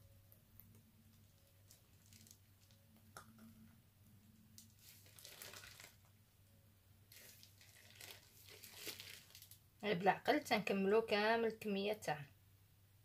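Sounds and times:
low steady hum: 0:00.0 - 0:13.0
plastic piping bag crinkling: 0:00.6 - 0:03.2, 0:04.5 - 0:06.2, 0:07.1 - 0:09.6.

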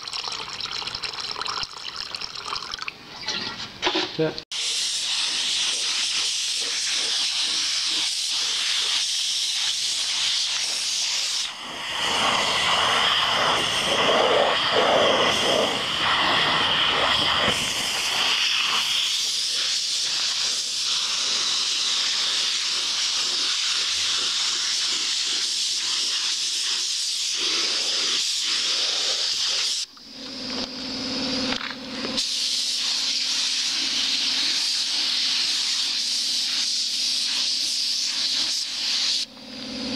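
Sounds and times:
spray gun hissing: 0:04.5 - 0:29.9, 0:32.2 - 0:39.9.

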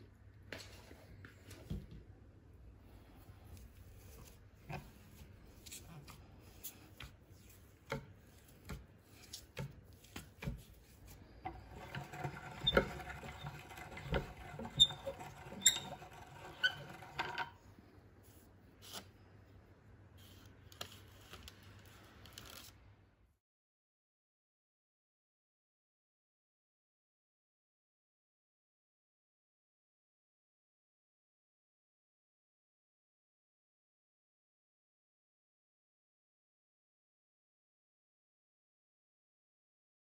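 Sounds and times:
grinder grinding: 0:11.5 - 0:17.6
meat grinder crank clicking: 0:11.5 - 0:17.6.

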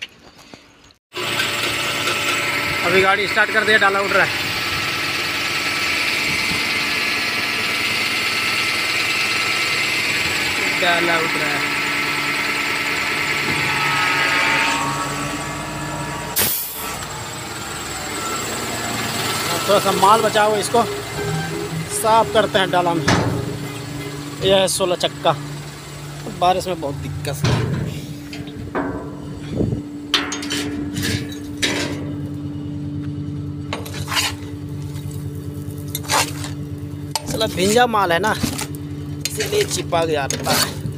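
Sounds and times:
diesel engine running: 0:01.1 - 0:40.9
hydraulic hoist raising: 0:01.2 - 0:32.5
sharp hiss of air: 0:16.4 - 0:17.0
hand tool scraping and knocking metal: 0:27.2 - 0:32.2, 0:33.7 - 0:35.2, 0:35.9 - 0:40.9.

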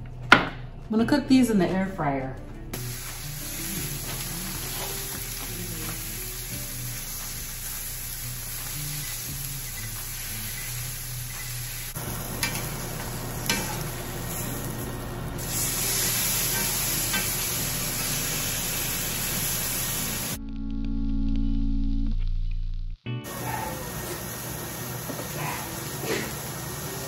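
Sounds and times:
guitar music: 0:00.8 - 0:27.0
steak sizzling in a skillet: 0:02.8 - 0:20.4, 0:23.3 - 0:27.0.

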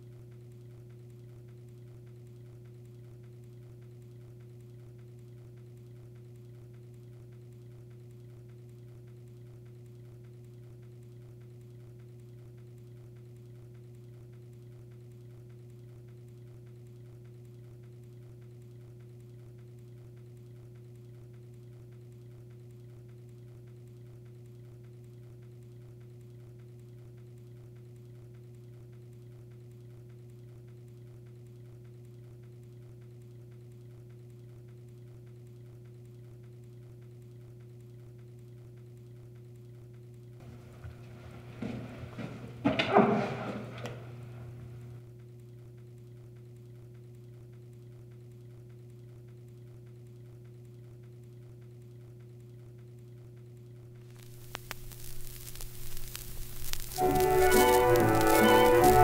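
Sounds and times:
steady low hum: 0:54.1 - 0:59.0.

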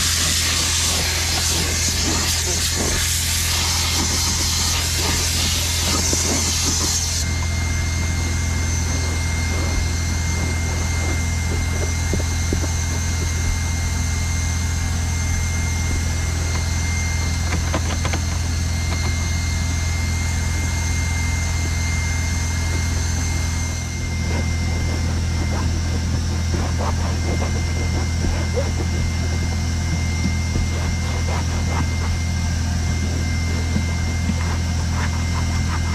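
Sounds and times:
towel wiping rubber mat: 0:00.0 - 0:07.2, 0:08.8 - 0:13.7, 0:22.6 - 0:35.9
carpet extractor spray hissing: 0:00.0 - 0:07.4
extractor motor humming with whine: 0:00.0 - 0:35.9.

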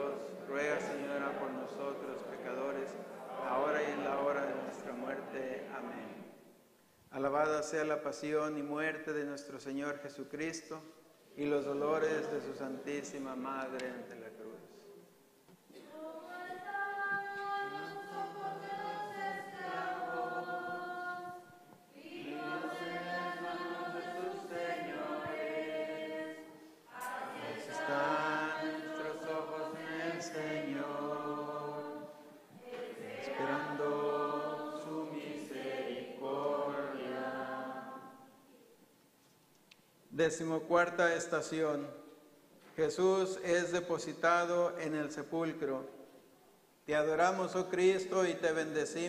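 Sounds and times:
congregation singing a hymn: 0:00.0 - 0:06.6, 0:07.2 - 0:14.9, 0:15.8 - 0:38.5.

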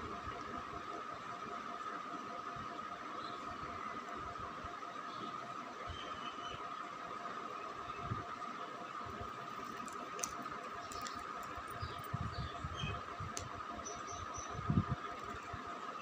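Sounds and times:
constant high hum: 0:00.0 - 0:16.0.

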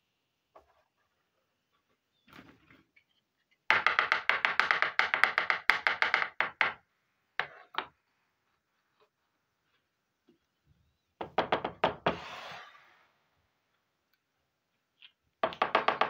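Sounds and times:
plastic toy scraping on hard surface: 0:12.1 - 0:13.0.

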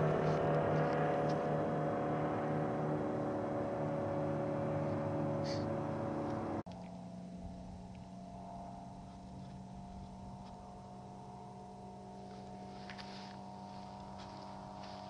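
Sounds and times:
aircraft engine droning: 0:00.0 - 0:15.0
faint motor drone: 0:00.0 - 0:15.0.

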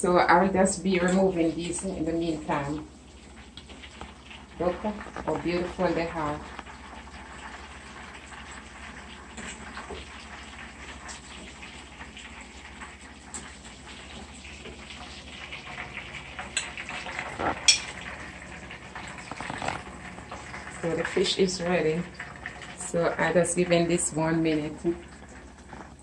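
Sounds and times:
oil sizzling in frying pan: 0:00.4 - 0:26.0
fork and plate clinking: 0:17.6 - 0:18.0.

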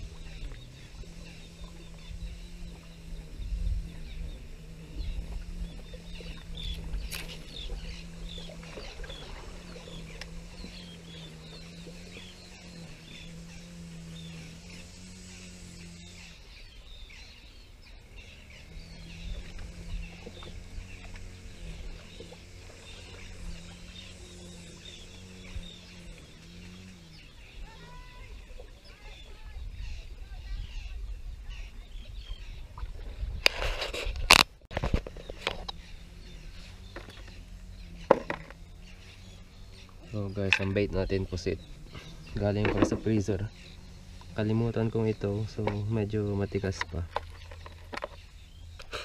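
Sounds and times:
wind on microphone: 0:00.0 - 0:16.0, 0:18.6 - 0:37.2
low hum changing pitch: 0:00.0 - 0:49.0
small birds chirping: 0:00.0 - 0:49.0.

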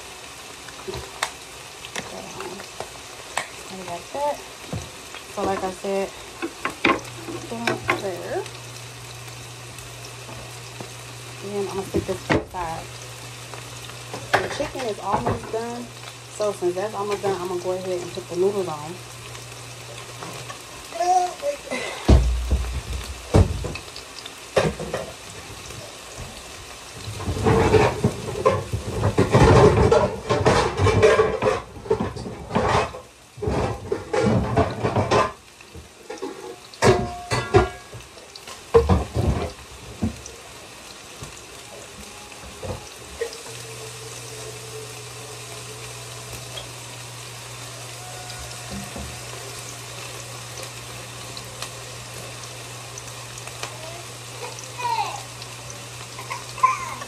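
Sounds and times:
chicken sizzling in a pan: 0:00.0 - 0:57.0
pots and utensils clattering: 0:00.8 - 0:08.5, 0:14.1 - 0:18.8, 0:21.7 - 0:25.5, 0:27.0 - 0:40.3, 0:42.4 - 0:44.7.

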